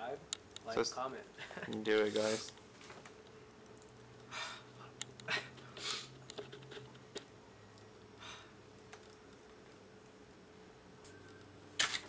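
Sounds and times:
person taking sharp breaths: 0:04.3 - 0:06.1, 0:08.2 - 0:08.6.

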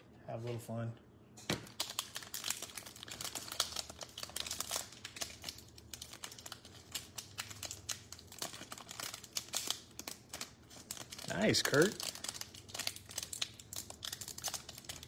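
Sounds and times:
foil wrapper crinkling: 0:01.6 - 0:15.0.

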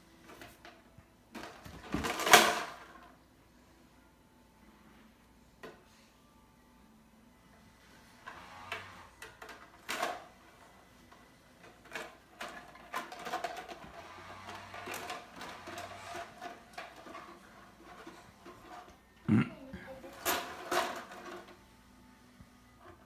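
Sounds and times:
plastic clattering: 0:00.2 - 0:03.2, 0:08.3 - 0:19.0, 0:20.0 - 0:21.6
toy bow and arrows handled: 0:11.1 - 0:19.0, 0:20.1 - 0:21.6.

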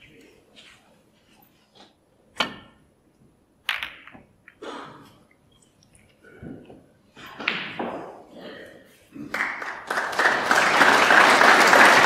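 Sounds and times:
snooker balls clicking together: 0:03.6 - 0:04.6.

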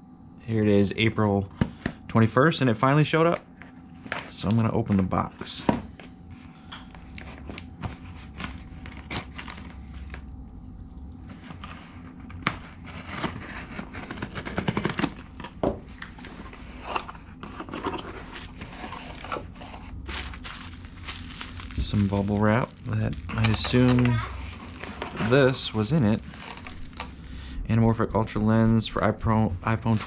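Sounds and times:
cardboard rustling: 0:03.4 - 0:10.3, 0:11.2 - 0:27.2, 0:29.7 - 0:30.0
plastic wrapping crinkling: 0:05.9 - 0:27.2
tape tearing: 0:12.5 - 0:27.1.

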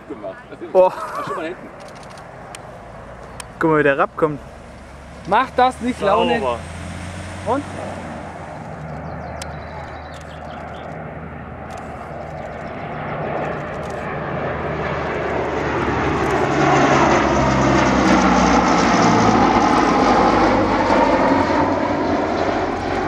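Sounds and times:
turboprop aircraft flyby drone: 0:00.0 - 0:23.0.

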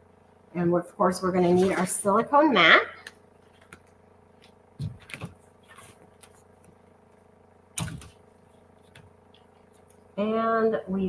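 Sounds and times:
cutting mat rustling: 0:01.4 - 0:02.0, 0:03.4 - 0:10.1
cutting mat thump: 0:04.8 - 0:05.4, 0:07.8 - 0:08.2.

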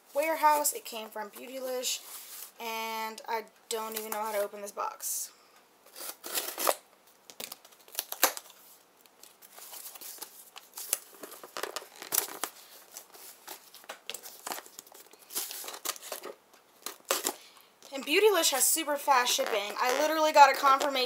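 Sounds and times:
packing tape tearing: 0:05.9 - 0:08.6, 0:09.2 - 0:17.4, 0:19.3 - 0:21.0
packaging rustling and crinkling: 0:05.9 - 0:17.4.

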